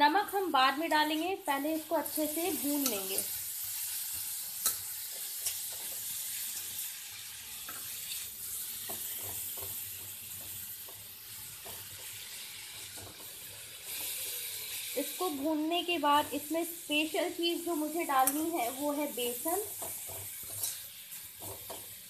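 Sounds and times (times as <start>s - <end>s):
food sizzling in hot oil: 0.0s - 22.0s
metal spoon scraping and tapping: 19.8s - 21.8s.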